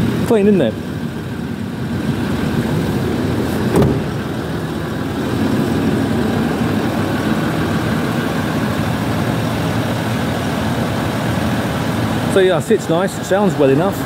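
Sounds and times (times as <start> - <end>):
diesel engine idling: 0.0 - 14.0
car door being shut: 3.5 - 4.4.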